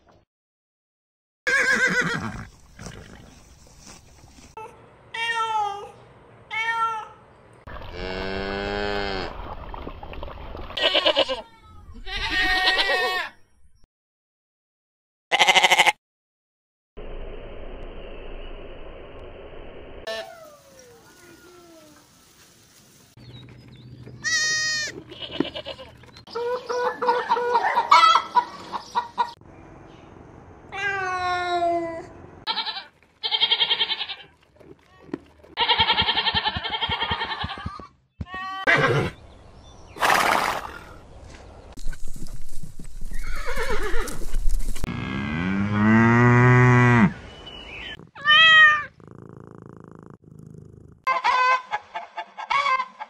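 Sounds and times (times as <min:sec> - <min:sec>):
goats and sheep bleating: 0:10.8 - 0:13.3, 0:15.3 - 0:16.0, 0:24.2 - 0:26.0, 0:32.5 - 0:34.4, 0:35.0 - 0:38.9.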